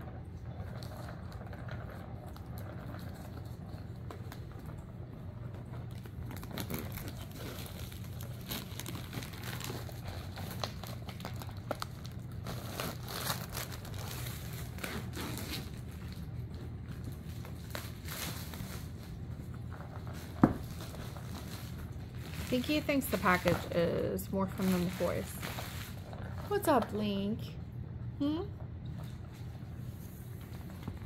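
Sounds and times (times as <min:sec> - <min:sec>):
crinkly packaging rustling: 0:05.5 - 0:27.0.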